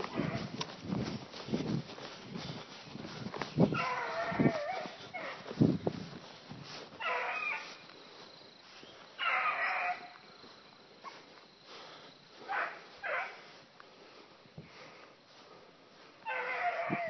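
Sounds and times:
dog barking: 7.0 - 7.6, 9.2 - 10.1, 12.5 - 13.4.

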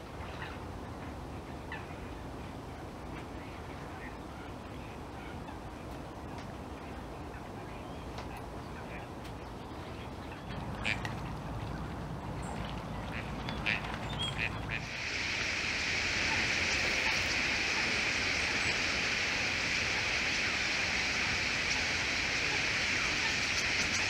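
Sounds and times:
starling flock chattering: 13.1 - 24.0.

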